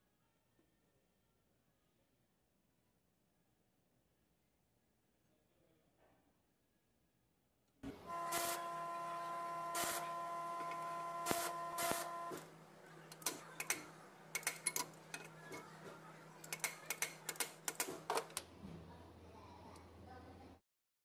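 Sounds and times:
angle grinder cutting steel: 0:07.8 - 0:12.5.

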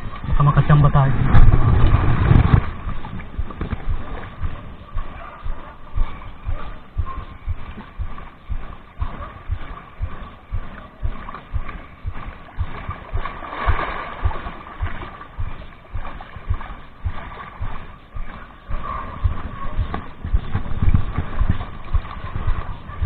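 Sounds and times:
low thumps: 0:00.0 - 0:23.0
sea water splashing on rocks: 0:01.2 - 0:04.4, 0:11.2 - 0:17.7.

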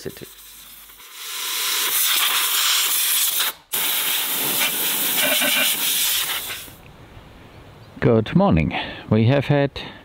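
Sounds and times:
high-pressure jet hissing: 0:00.0 - 0:06.8.

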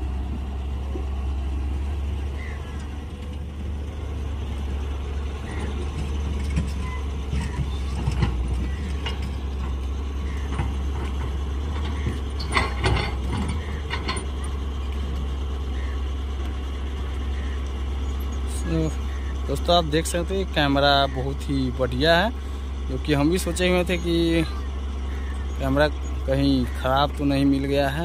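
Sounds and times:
diesel excavator engine running: 0:00.0 - 0:28.0
excavator bucket knocking and clanking: 0:05.4 - 0:15.4.

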